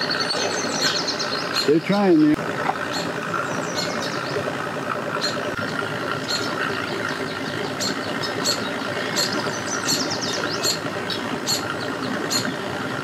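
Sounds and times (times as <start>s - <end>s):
small birds chirping: 0.0s - 4.5s, 5.1s - 5.6s, 6.2s - 12.7s
boat engines idling: 0.0s - 13.0s.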